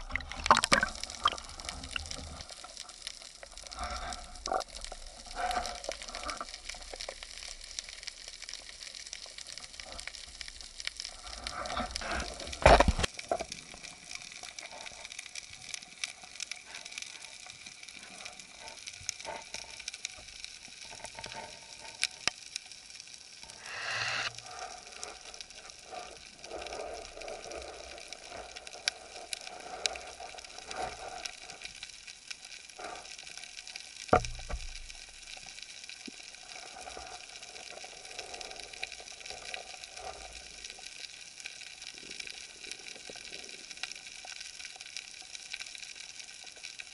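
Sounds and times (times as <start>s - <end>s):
underwater crackling and ticking: 0.0s - 46.9s
brief rush of noise: 23.4s - 24.3s.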